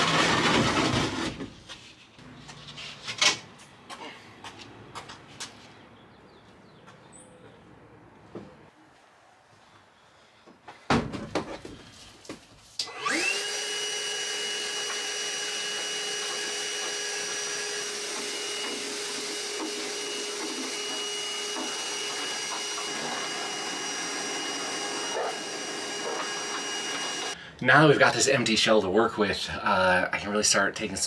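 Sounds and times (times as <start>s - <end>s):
vacuum cleaner motor running: 12.8s - 27.4s.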